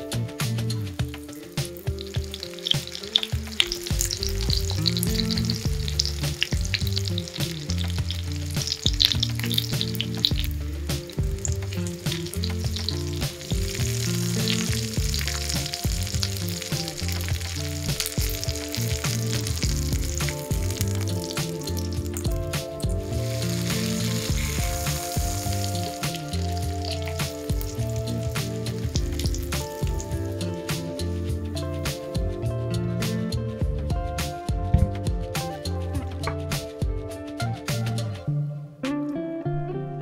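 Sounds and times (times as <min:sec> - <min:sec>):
food sizzling in hot oil: 0:01.0 - 0:31.4.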